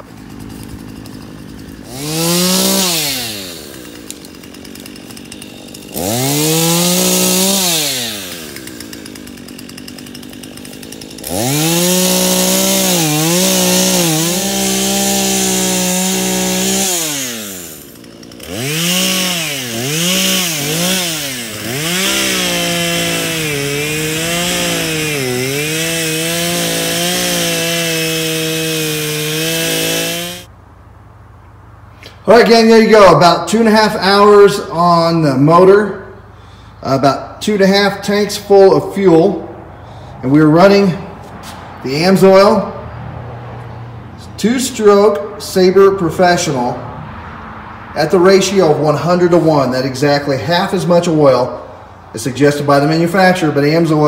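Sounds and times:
chainsaw cutting wood: 0:00.0 - 0:30.5.

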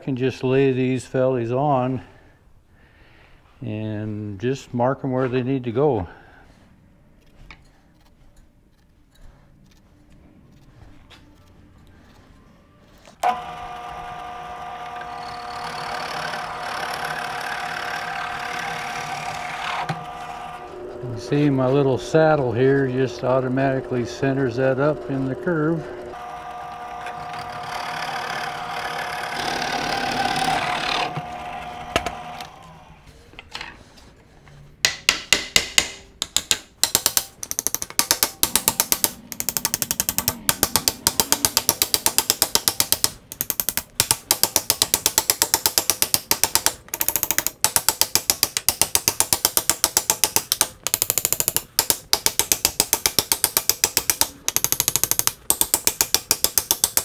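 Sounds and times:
drill press boring into wood: 0:13.2 - 0:32.9
hammer tapping wood: 0:34.8 - 0:57.0.

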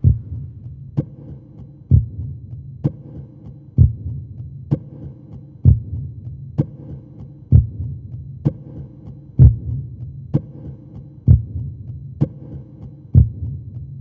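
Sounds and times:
deep thumping pulse: 0:00.0 - 0:01.1.

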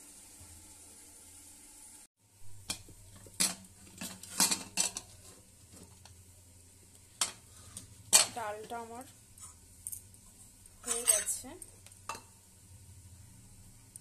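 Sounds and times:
metal lid clanking: 0:02.7 - 0:05.9, 0:10.8 - 0:11.4
lid scraping against pot: 0:02.7 - 0:06.1.

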